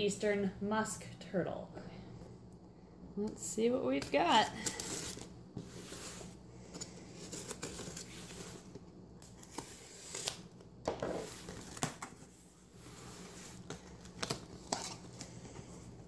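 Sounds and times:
tape tearing and peeling: 9.2 - 10.5.

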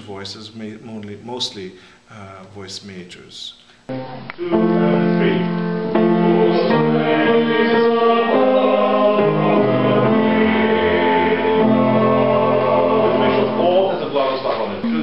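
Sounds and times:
choir singing held chords: 3.9 - 15.0.

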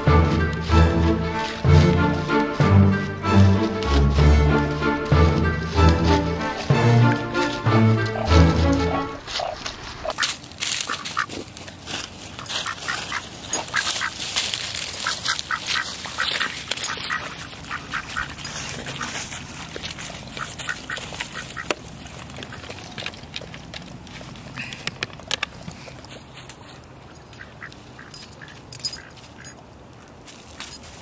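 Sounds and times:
dry leaves crunching underfoot: 0.0 - 31.0
duck quacking: 7.9 - 11.4, 12.4 - 14.2, 14.9 - 19.6, 20.2 - 22.8, 27.3 - 29.4.

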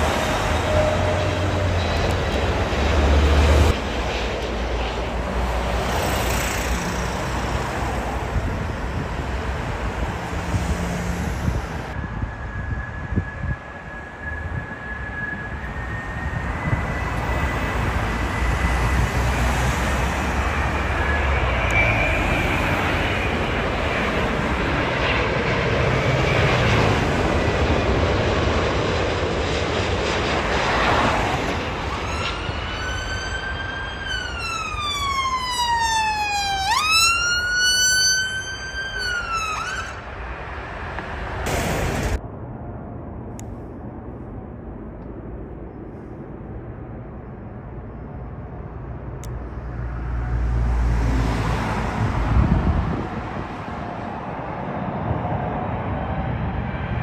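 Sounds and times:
emergency vehicle siren wailing: 0.0 - 3.8, 10.1 - 28.0, 30.7 - 40.8
jet airliner passing low: 0.0 - 57.0.

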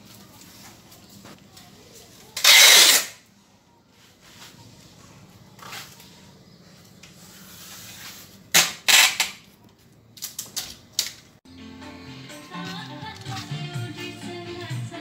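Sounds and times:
background music: 11.5 - 15.0.

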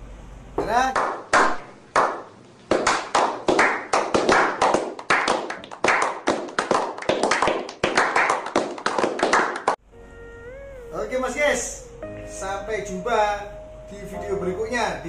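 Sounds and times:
people clapping: 0.9 - 9.8.

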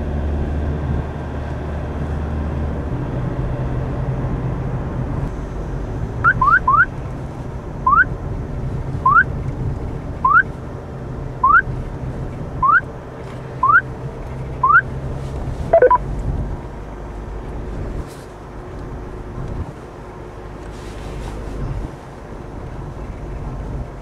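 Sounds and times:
radar detector rising chirps: 6.2 - 6.9, 7.9 - 8.1, 9.1 - 9.3, 11.4 - 11.6, 12.6 - 12.8, 13.6 - 13.9, 14.6 - 14.9, 15.7 - 16.0
car cabin hum: 6.2 - 8.1, 8.9 - 10.6, 11.4 - 11.9, 12.6 - 16.3
cluster of quick beeps: 6.3 - 6.9, 11.4 - 11.6, 12.6 - 12.8, 13.6 - 13.8, 14.6 - 14.8, 15.7 - 16.0.

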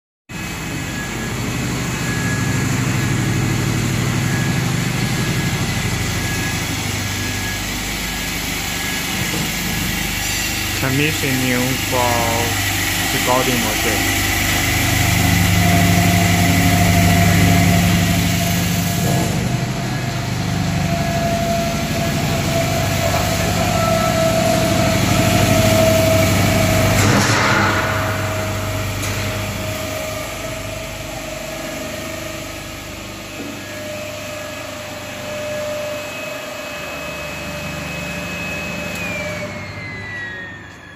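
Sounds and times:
machine motor hum: 0.4 - 40.9
thin whine: 4.0 - 26.0.

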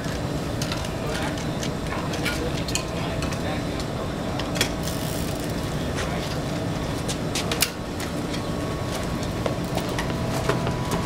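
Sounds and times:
low mechanical hum: 0.0 - 11.0
bike wheel clicks and clacks: 4.4 - 6.1.

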